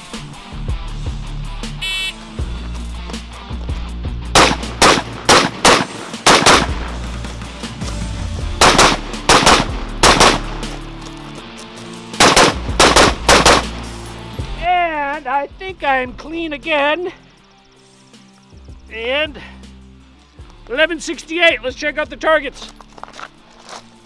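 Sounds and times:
semi-automatic rifle fire: 4.4 - 6.8, 8.6 - 10.5, 12.2 - 13.7.

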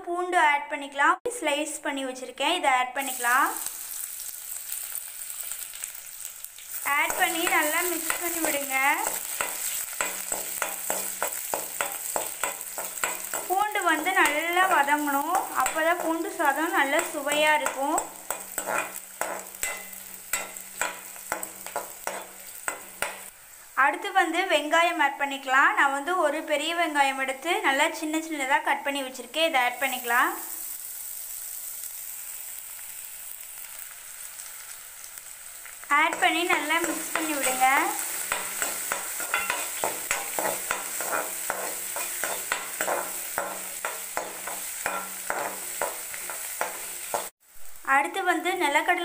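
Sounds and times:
light sizzle of oil: 3.0 - 49.0
metal spatula scraping pan: 7.0 - 14.5, 15.1 - 23.2, 36.1 - 47.3.

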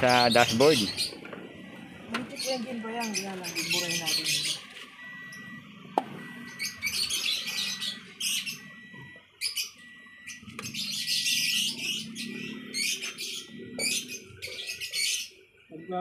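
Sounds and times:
birds chirping: 0.0 - 16.0
faint steady high tone: 15.7 - 16.0.

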